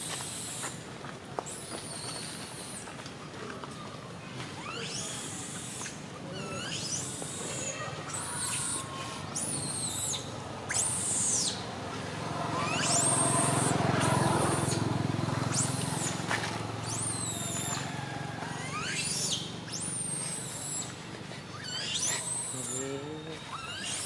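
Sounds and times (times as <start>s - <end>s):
high whistled calls: 1.4s - 2.9s, 4.6s - 11.7s, 12.5s - 24.0s
vehicle engine drone: 8.0s - 24.0s.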